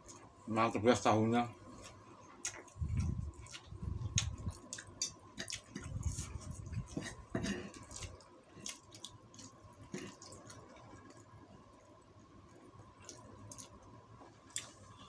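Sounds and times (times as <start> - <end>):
chewing food: 1.8 - 11.3, 12.5 - 14.9.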